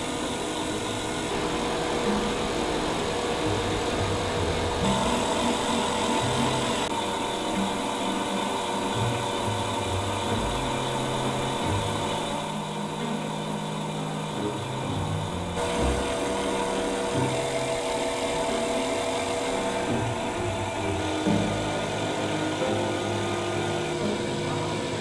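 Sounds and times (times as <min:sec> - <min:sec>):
background music: 0:00.0 - 0:25.0
chain-making machine running: 0:00.0 - 0:25.0.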